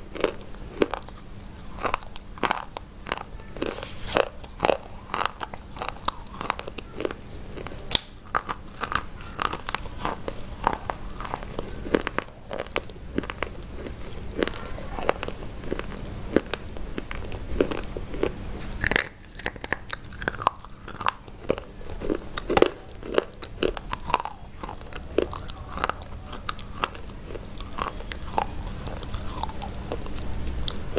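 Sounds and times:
chewing: 0.0s - 30.9s
chalk crunching and snapping: 3.7s - 4.4s.

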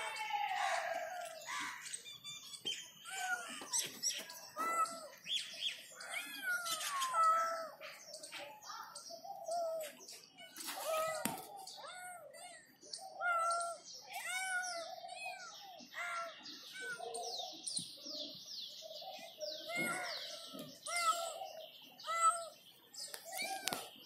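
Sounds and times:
kittens mewing: 4.5s - 5.2s, 6.0s - 7.8s, 9.5s - 17.3s, 19.6s - 22.6s.

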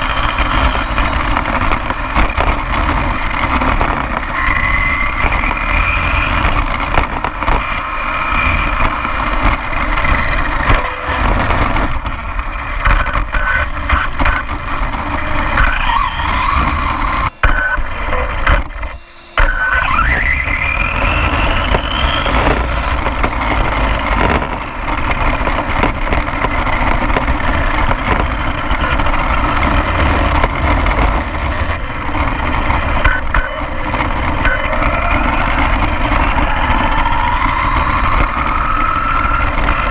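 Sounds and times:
electric motor whine: 0.0s - 39.9s
tyres rumbling on asphalt: 0.0s - 39.9s
wind on microphone: 19.8s - 39.9s.

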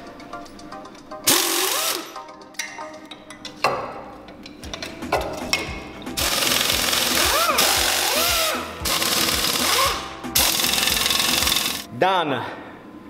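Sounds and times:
pneumatic air ratchet running: 1.3s - 2.1s, 6.2s - 11.9s.

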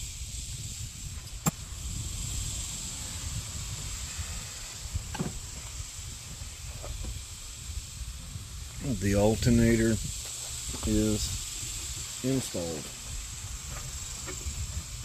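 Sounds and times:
steady high hiss: 0.0s - 15.0s.

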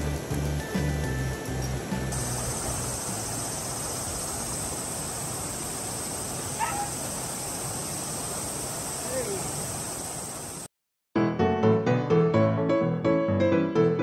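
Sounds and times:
outdoor background hiss: 0.0s - 10.7s
constant high drone: 2.1s - 10.6s
warbling animal call: 6.5s - 7.1s.

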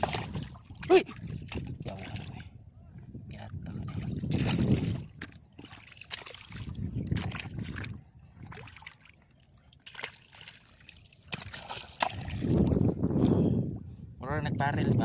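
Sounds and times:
small splashes: 0.0s - 2.4s, 3.8s - 12.8s.

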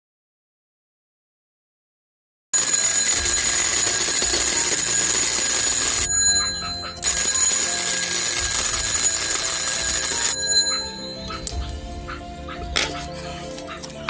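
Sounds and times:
electric alarm bell ringing: 2.6s - 12.1s.

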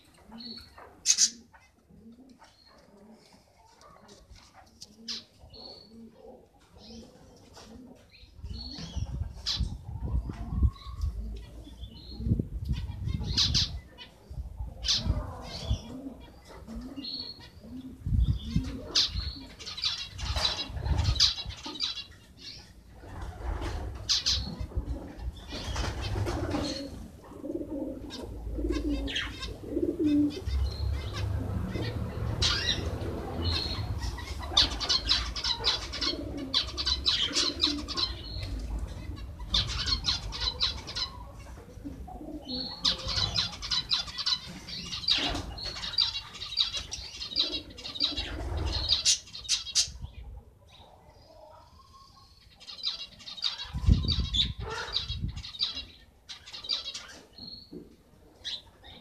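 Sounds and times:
wings fluttering: 25.5s - 27.0s.

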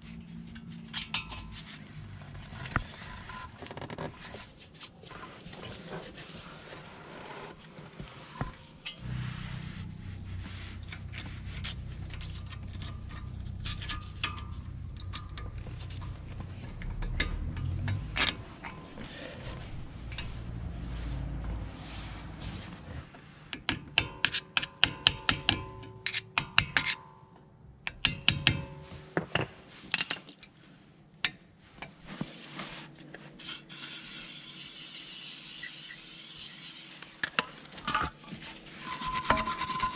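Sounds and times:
low steady hum: 7.8s - 23.2s.

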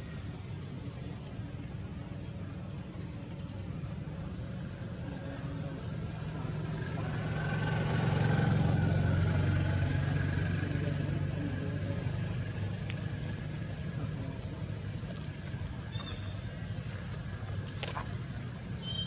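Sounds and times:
vehicle engine passing by: 4.6s - 18.8s.

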